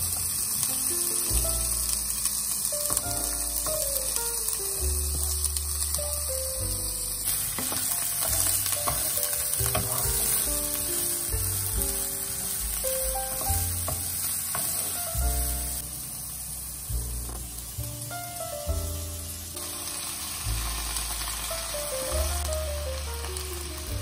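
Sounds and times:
background music: 0.0s - 24.0s
vegetables sizzling in oil: 0.0s - 24.0s
wooden spatula scraping a pan: 7.3s - 15.0s.

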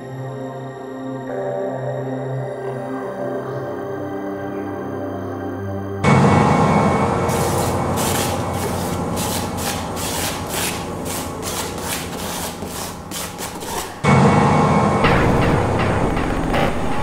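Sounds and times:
music: 0.0s - 17.0s
paint scraping strokes on panel: 7.3s - 14.0s.

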